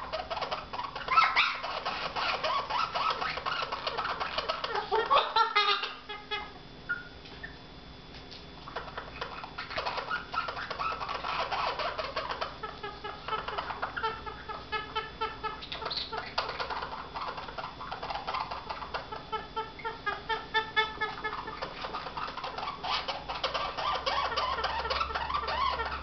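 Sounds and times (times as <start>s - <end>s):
parrot harsh repeated calls: 0.3s - 6.4s.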